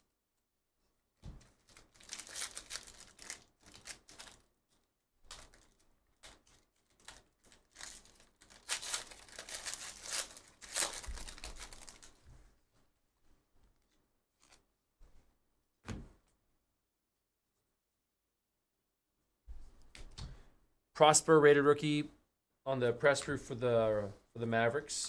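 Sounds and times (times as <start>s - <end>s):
foil pack tearing and crinkling: 1.6s - 4.5s, 5.3s - 12.2s.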